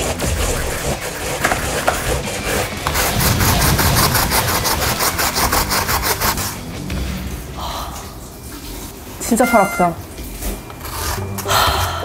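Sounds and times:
potato grated on plastic grater: 0:00.0 - 0:06.6.

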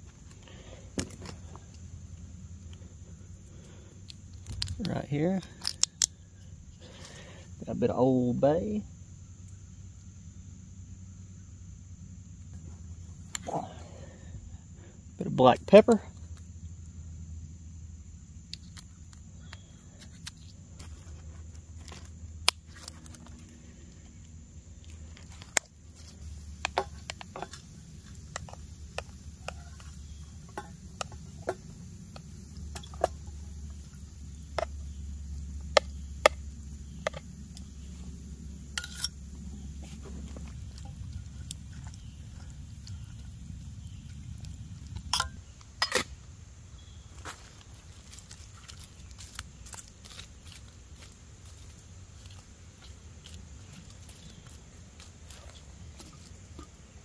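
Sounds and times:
low background hum: 0:00.0 - 0:57.0
spoon scraping metal cup: 0:38.8 - 0:39.2.

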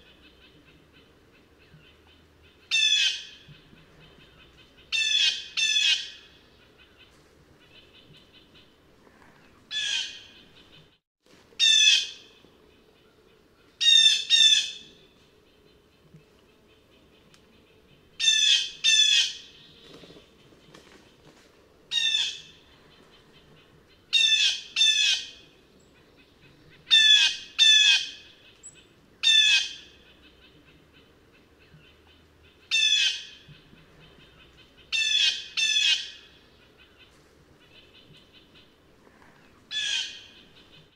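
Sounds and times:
blue jay jeer calls: 0:39.7 - 0:40.7.

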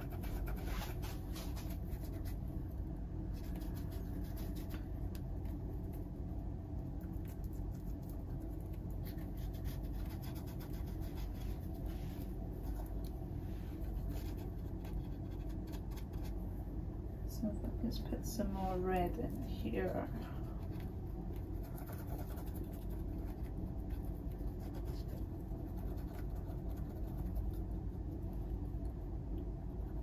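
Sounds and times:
paintbrush scrubbing on canvas: 0:00.0 - 0:02.5, 0:09.0 - 0:16.4
steady low hum: 0:00.0 - 0:30.0.

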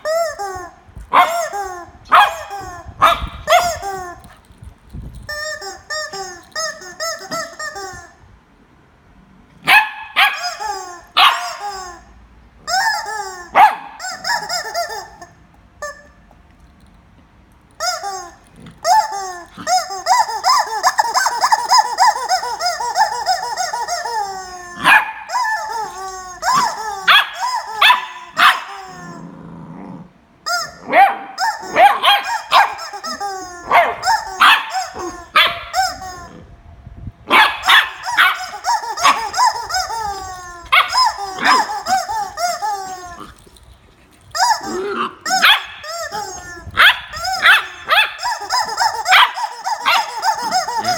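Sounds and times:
puppy barking and yipping: 0:01.1 - 0:04.3, 0:09.6 - 0:12.0, 0:12.7 - 0:15.2, 0:18.8 - 0:29.2, 0:30.5 - 0:36.3, 0:37.3 - 0:43.5, 0:44.3 - 0:50.9.

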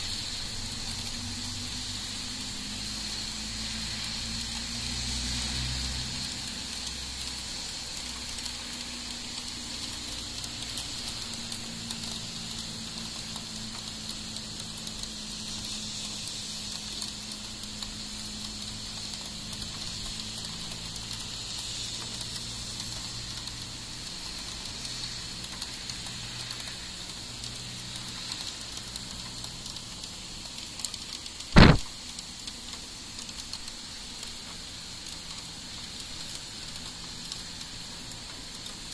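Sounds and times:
heavy rain pouring: 0:00.0 - 0:38.9
sharp knock: 0:31.6 - 0:31.8.

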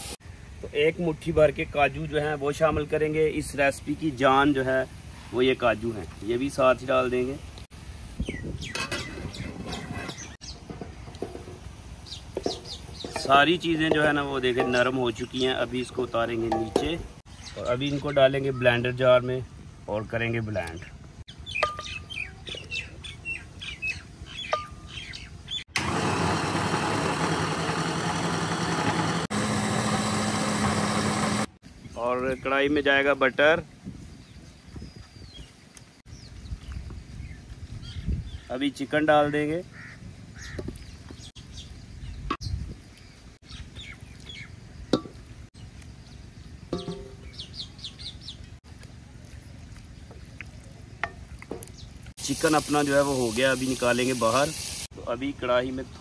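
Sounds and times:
small birds chirping: 0:05.2 - 0:25.7, 0:33.8 - 0:56.0
electric blender motor hum: 0:25.8 - 0:31.6.

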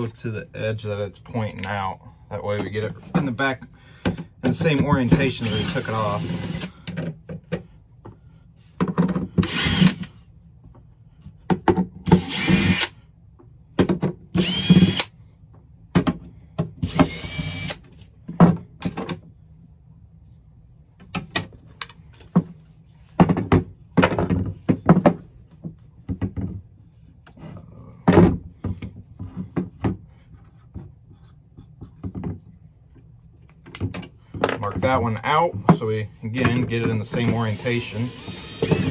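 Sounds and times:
cordless drill whirring: 0:05.4 - 0:06.7, 0:09.4 - 0:10.1, 0:12.1 - 0:12.9, 0:14.4 - 0:15.1, 0:16.9 - 0:17.8, 0:37.5 - 0:38.9.

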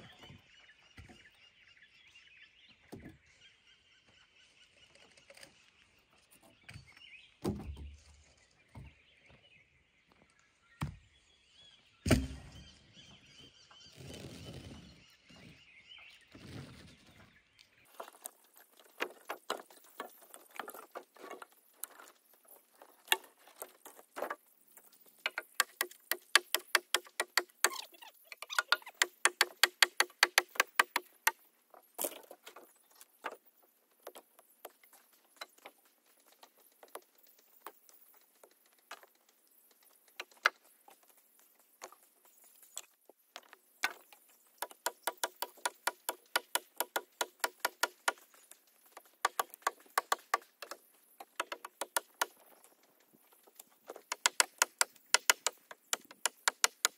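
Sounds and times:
logs dropping with thuds: 0:07.4 - 0:08.1, 0:12.1 - 0:12.6.

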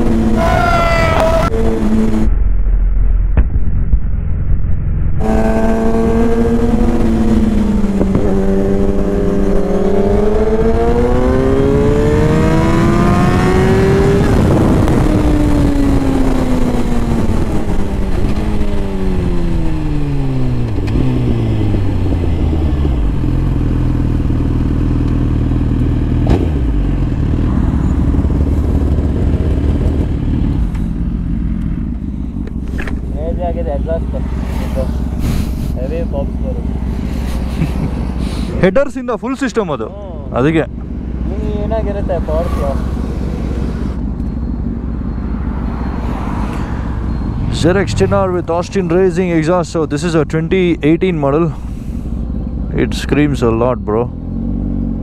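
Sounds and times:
motorcycle engine revving: 0:00.0 - 0:02.3, 0:05.1 - 0:55.0
wind rushing: 0:45.3 - 0:49.4.

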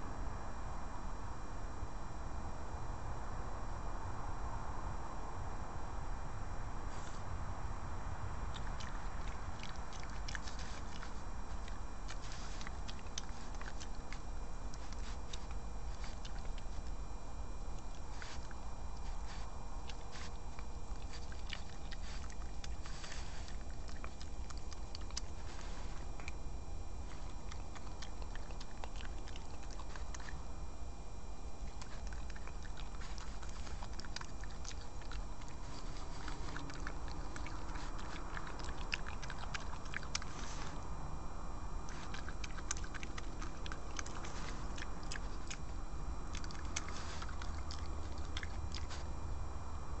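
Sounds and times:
low background rumble: 0:00.0 - 0:50.0
steady low hum: 0:00.0 - 0:50.0
badger chewing and crunching: 0:06.7 - 0:07.4, 0:08.0 - 0:50.0
badger snuffling: 0:08.5 - 0:16.9, 0:17.8 - 0:26.4, 0:27.0 - 0:30.4, 0:31.7 - 0:40.9, 0:41.9 - 0:49.1.

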